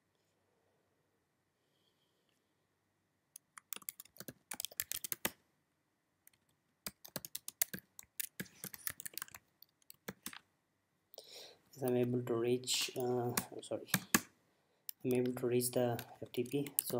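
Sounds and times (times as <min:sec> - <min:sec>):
computer keyboard typing: 0:03.4 - 0:05.4, 0:06.3 - 0:10.4, 0:11.8 - 0:14.3, 0:14.9 - 0:16.9.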